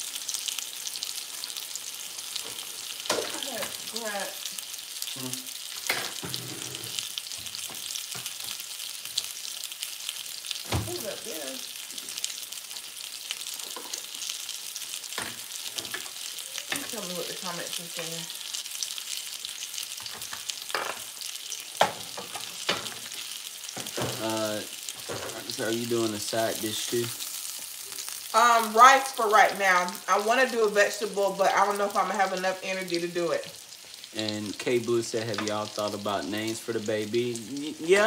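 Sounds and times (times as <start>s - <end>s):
chicken sizzling in frying pan: 0.0s - 38.0s.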